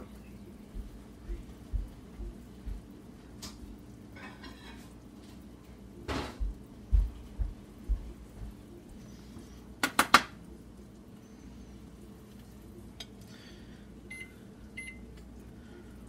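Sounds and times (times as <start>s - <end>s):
steady low hum: 0.0s - 16.0s
dishes and utensils clattering: 4.2s - 5.0s.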